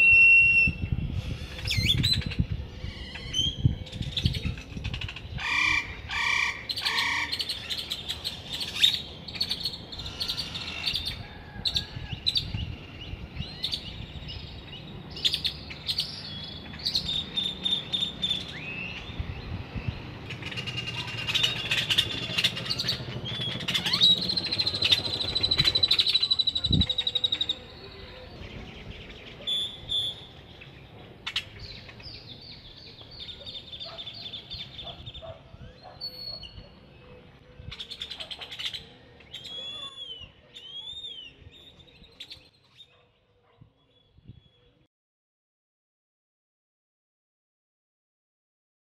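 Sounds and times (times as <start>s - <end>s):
birds chirping and whistling: 0.0s - 44.9s.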